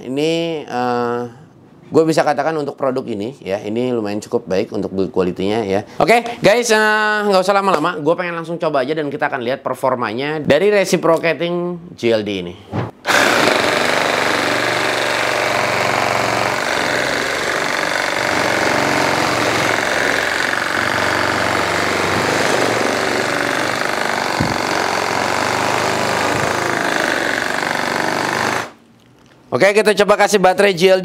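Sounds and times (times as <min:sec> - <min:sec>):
reciprocating saw cutting wood: 0:13.0 - 0:28.8.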